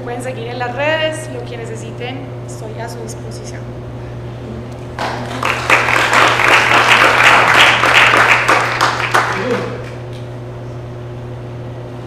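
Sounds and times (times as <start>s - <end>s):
audience applauding: 5.0s - 10.2s.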